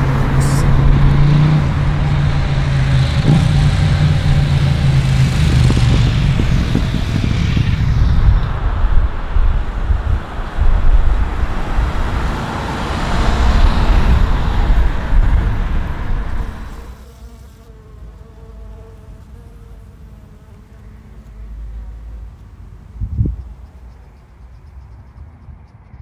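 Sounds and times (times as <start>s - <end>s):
cars passing: 0.0s - 17.1s, 17.9s - 25.9s
honeybees buzzing: 9.1s - 25.3s.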